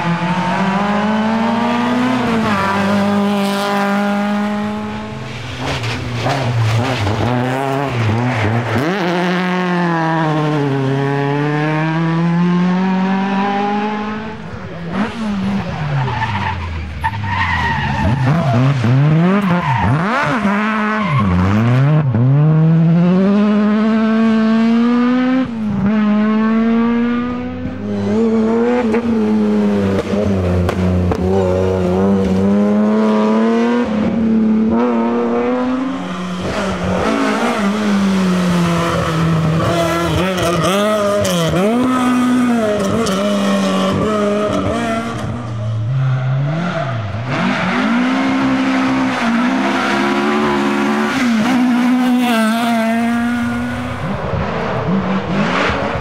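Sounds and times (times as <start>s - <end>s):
rally car engines revving: 0.0s - 56.0s.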